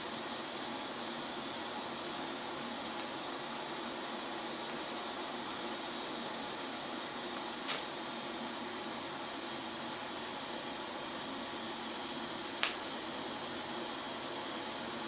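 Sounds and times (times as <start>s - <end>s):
welder steady hiss: 0.0s - 15.0s
sharp high-pitched arc crackles: 7.4s - 8.0s.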